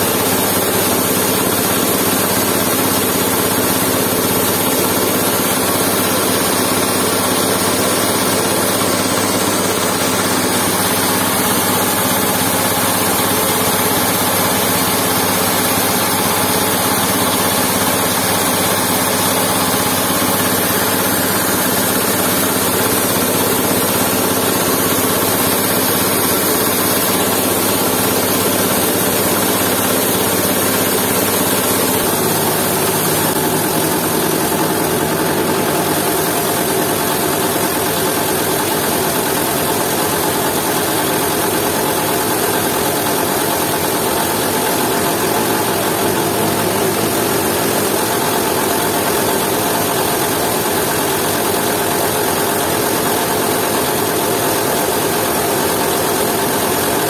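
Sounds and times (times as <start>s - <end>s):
coffee huller processing beans: 0.0s - 57.0s
diesel engine running: 0.1s - 41.3s, 42.0s - 54.2s.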